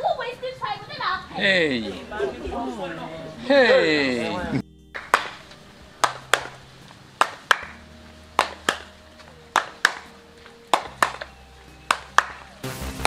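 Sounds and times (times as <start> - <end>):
rhythmic handclaps: 4.9 - 13.0.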